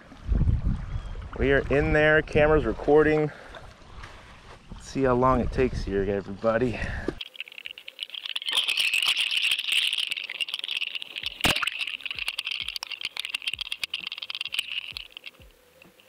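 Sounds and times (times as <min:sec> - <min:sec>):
underwater crackling and clicking: 0:07.2 - 0:16.0.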